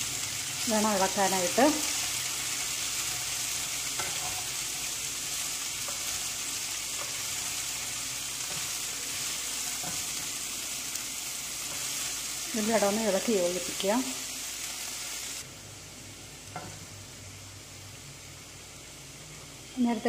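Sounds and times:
cabbage sizzling in hot oil: 0:00.0 - 0:15.5.

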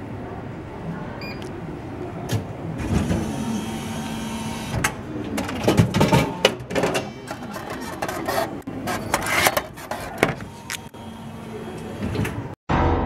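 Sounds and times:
vending mechanism whirring: 0:02.2 - 0:12.6.

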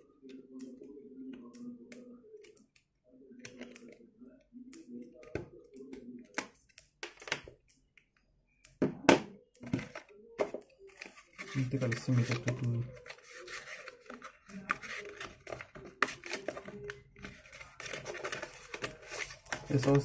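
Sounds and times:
plastic phone case clicks: 0:06.3 - 0:07.6
plastic clatter: 0:09.1 - 0:20.0.

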